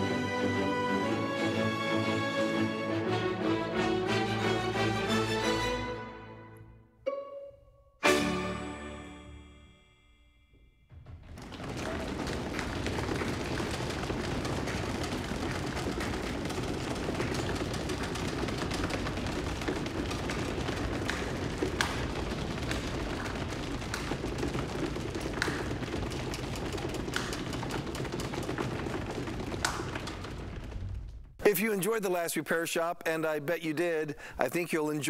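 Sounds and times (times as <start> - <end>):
people applauding: 11.1 - 31.8.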